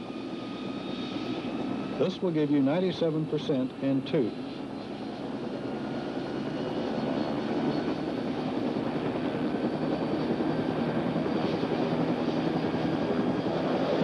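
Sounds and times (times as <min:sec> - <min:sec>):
helicopter turbine and rotor: 0:00.0 - 0:14.0.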